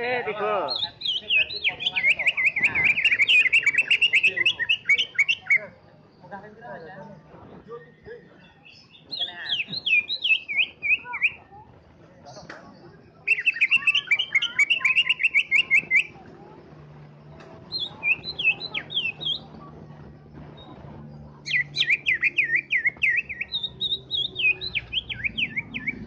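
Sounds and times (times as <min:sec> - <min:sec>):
bird singing high chirps: 0:00.7 - 0:06.2, 0:07.9 - 0:11.5, 0:13.3 - 0:16.2, 0:17.6 - 0:19.7, 0:20.6 - 0:26.0.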